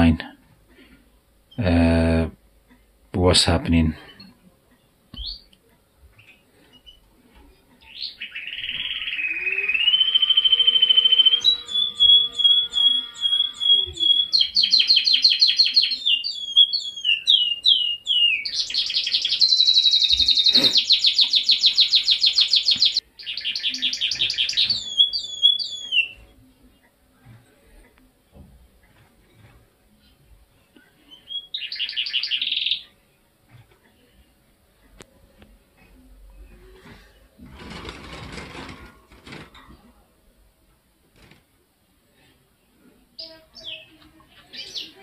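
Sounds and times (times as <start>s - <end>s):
canary singing trills: 7.8s - 26.3s, 31.0s - 33.0s, 43.2s - 45.0s.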